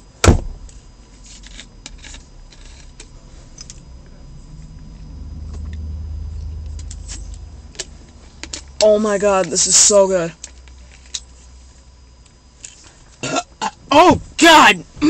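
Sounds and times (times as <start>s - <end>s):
low rumble: 1.8s - 8.8s.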